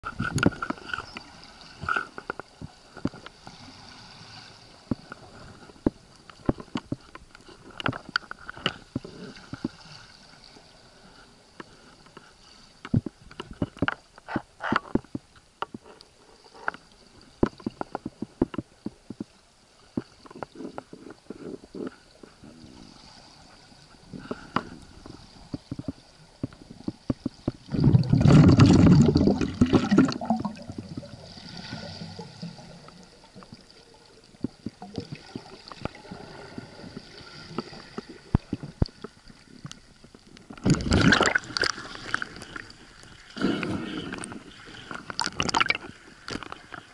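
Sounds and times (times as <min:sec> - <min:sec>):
underwater clicks and knocks: 0:00.0 - 0:03.3, 0:04.9 - 0:09.8, 0:11.6 - 0:16.8, 0:17.4 - 0:22.0, 0:24.2 - 0:31.2, 0:36.9 - 0:42.6, 0:43.4 - 0:46.9
faint steady hiss: 0:00.1 - 0:46.9
gurgling water rush: 0:27.7 - 0:33.5, 0:40.4 - 0:46.9.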